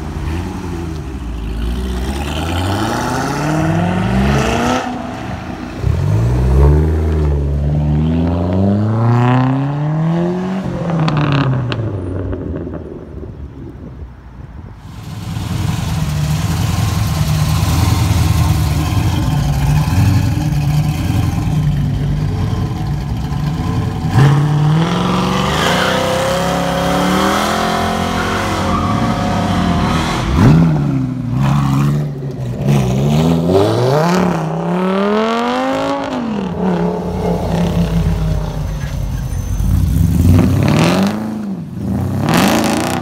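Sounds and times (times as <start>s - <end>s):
car engine revving: 14.9s - 43.0s
deep engine rumble: 35.5s - 40.7s.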